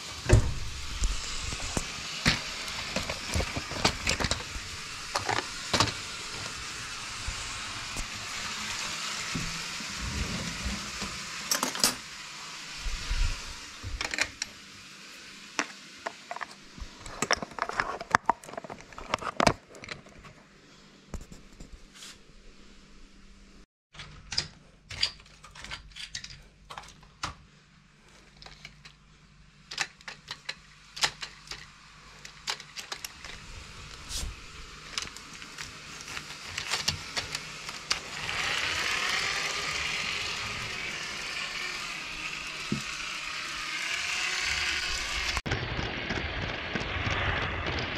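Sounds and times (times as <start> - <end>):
plastic cups and toy parts clicking: 29.7 - 33.4.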